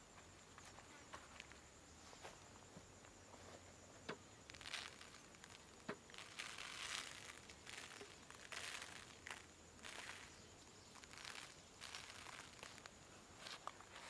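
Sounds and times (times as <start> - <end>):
salt grains pattering: 4.1 - 14.0.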